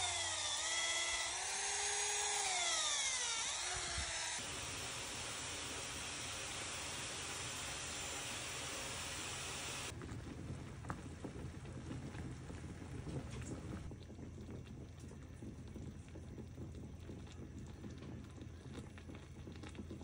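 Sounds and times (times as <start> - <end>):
steady hiss: 0.0 - 9.9
broth bubbling with small pops: 9.9 - 20.0.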